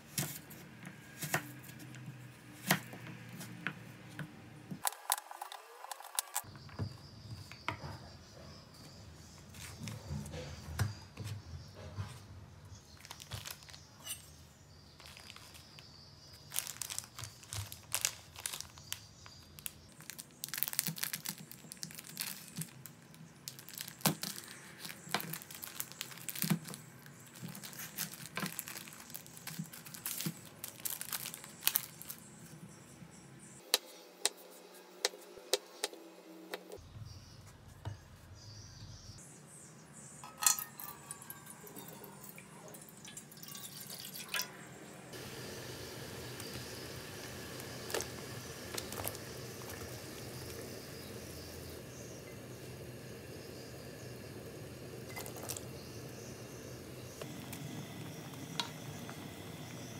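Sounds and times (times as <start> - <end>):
plastic wrapping crinkling: 4.8 - 6.5, 12.9 - 14.2, 15.0 - 32.3, 45.2 - 52.2, 54.2 - 59.9
water pouring into a pan: 40.4 - 44.5.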